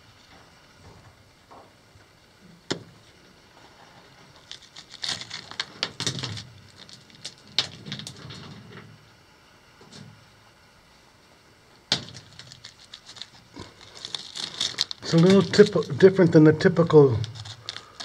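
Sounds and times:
rock fragments knocking and scraping: 0:04.3 - 0:08.6, 0:11.9 - 0:16.0, 0:17.2 - 0:18.0.

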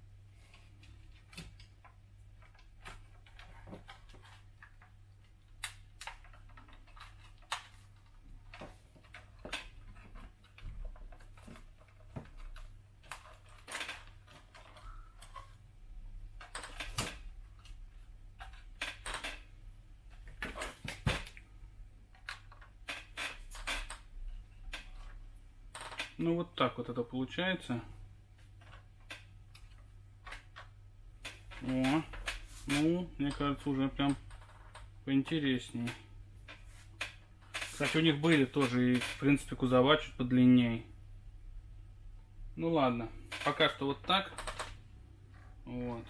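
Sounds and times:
plastic parts clicking and knocking: 0:00.8 - 0:15.6, 0:16.2 - 0:26.2, 0:28.4 - 0:35.0, 0:43.2 - 0:46.0.

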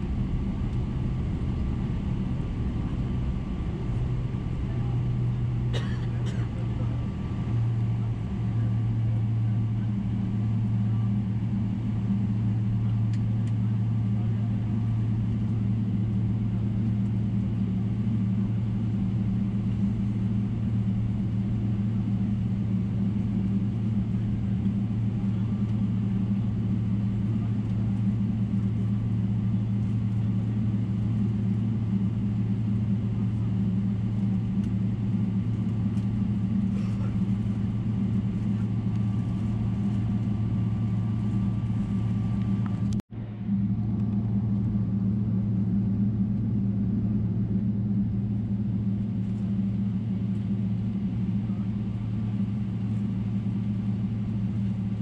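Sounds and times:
higher hum: 0:00.0 - 0:10.3
airplane cabin drone: 0:00.0 - 0:55.0
deep hum: 0:00.0 - 0:55.0.

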